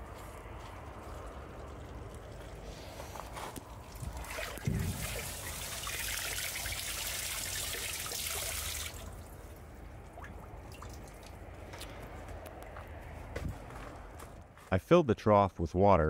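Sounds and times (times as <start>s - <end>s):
faint water drips: 0.2s - 12.1s
hose water spraying into tank: 2.3s - 9.5s.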